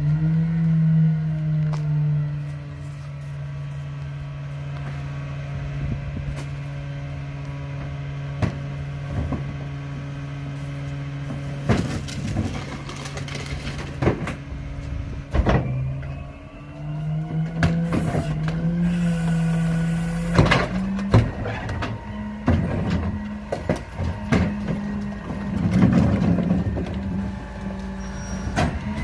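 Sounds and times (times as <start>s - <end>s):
diesel truck engine idling: 0.0s - 29.0s
trash carts knocking and rattling: 7.7s - 10.2s, 10.8s - 29.0s
carts rolling over gravel: 8.6s - 29.0s.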